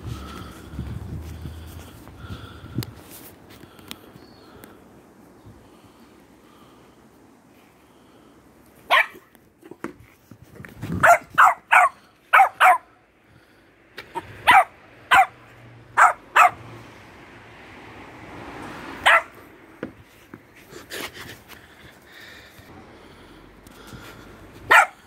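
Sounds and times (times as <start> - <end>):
small dog barking: 8.9 - 9.3, 11.0 - 12.9, 14.2 - 16.6, 19.0 - 19.4, 24.7 - 25.0.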